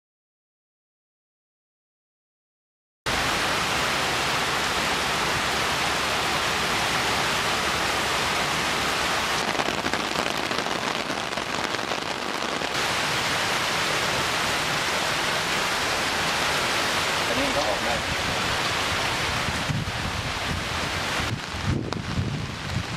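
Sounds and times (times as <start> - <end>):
heavy rain pouring: 3.1 - 22.9.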